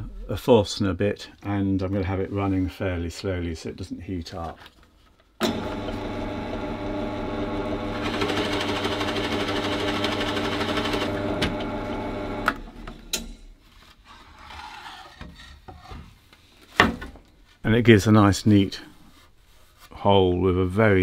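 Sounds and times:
drill boring into wood: 5.4s - 12.6s.

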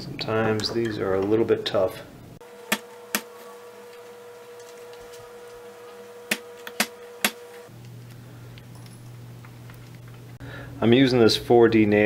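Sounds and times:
sharp clicks of a punch: 6.3s - 7.4s.

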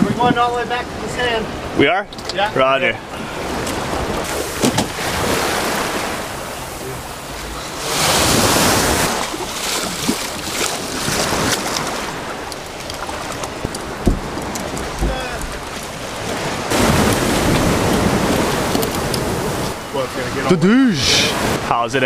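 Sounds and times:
wind buffeting microphone: 0.0s - 2.3s, 3.0s - 20.5s
small waves washing over sand: 3.0s - 21.7s
light knocks: 12.9s - 15.6s.

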